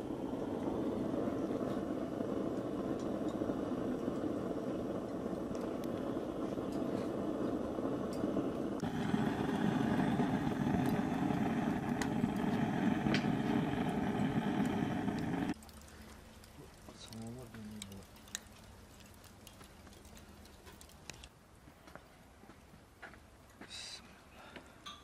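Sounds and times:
low mechanical drone: 0.0s - 15.6s.

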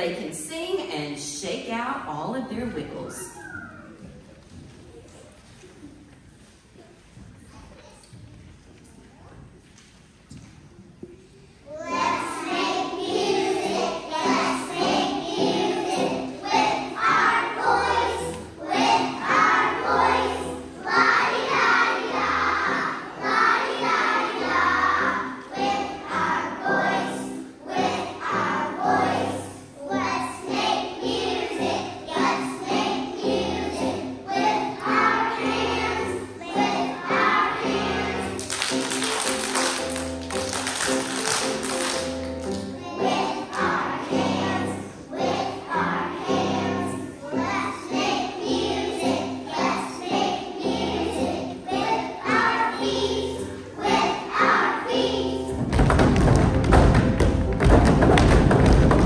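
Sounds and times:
children singing together: 11.7s - 55.6s
instrumental accompaniment: 30.0s - 45.8s.

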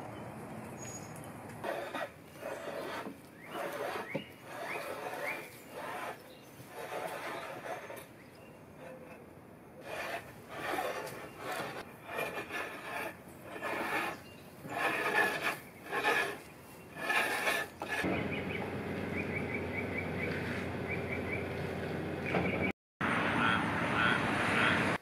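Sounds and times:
hand tool scraping wood: 1.6s - 9.2s, 9.8s - 18.1s.

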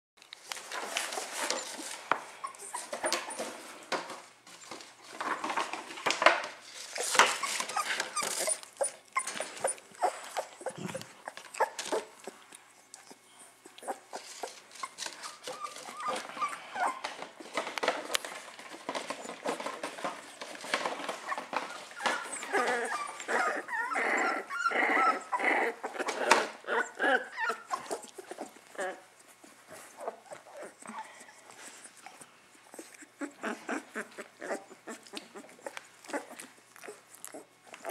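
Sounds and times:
scuffling and handling noises: 0.2s - 23.7s
puppies whining and yapping: 0.8s - 37.9s.

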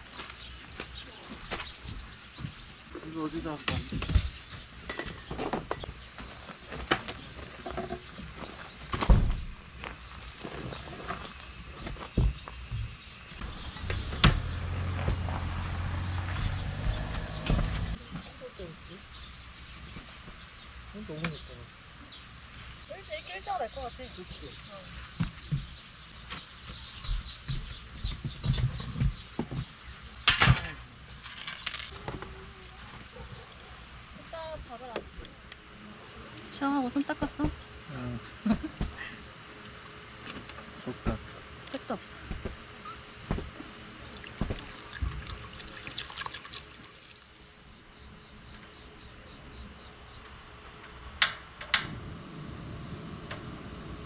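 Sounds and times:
insect buzzing song: 0.0s - 35.9s.

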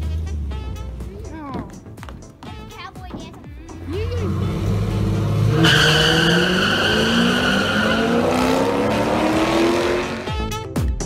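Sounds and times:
car engines revving: 3.7s - 10.5s
tire squeal: 4.2s - 10.3s.

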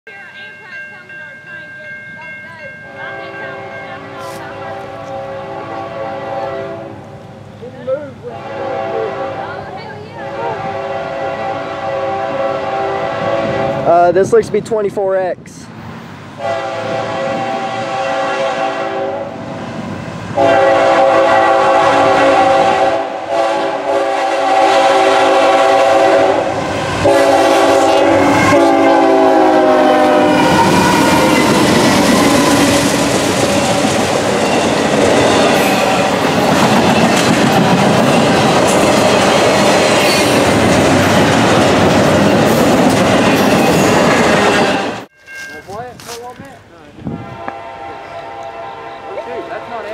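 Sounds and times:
locomotive air horn chord: 3.1s - 7.0s, 8.3s - 9.6s, 10.2s - 13.9s, 16.4s - 19.4s, 20.4s - 33.0s, 47.1s - 49.9s
train wheels clattering on rails: 30.4s - 46.3s.

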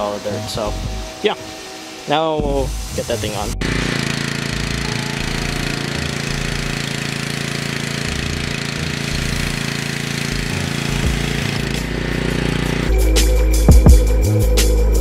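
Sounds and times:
pressure washer engine running: 2.7s - 14.0s.

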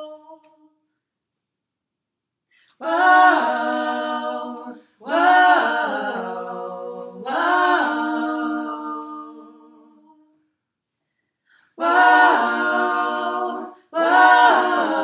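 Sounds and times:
women singing a cappella: 0.0s - 0.7s, 2.7s - 10.4s, 11.6s - 15.0s.

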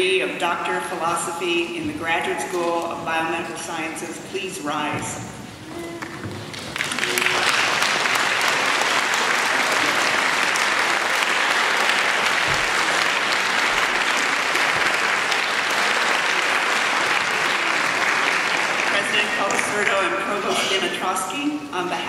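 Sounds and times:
large audience clapping: 5.9s - 20.4s.

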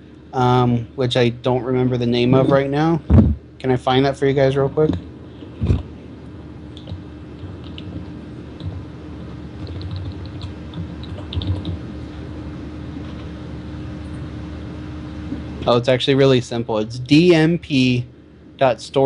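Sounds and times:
low hum: 0.0s - 19.0s
typing on computer keyboard: 9.6s - 11.8s.

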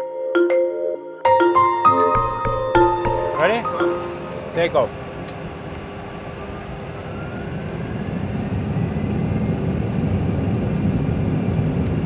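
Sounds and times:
jet engines spooling up: 3.4s - 12.0s.

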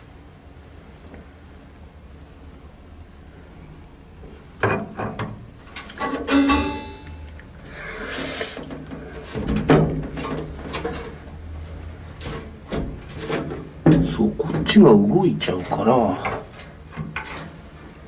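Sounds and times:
metal knocks and rattles: 8.8s - 11.2s.

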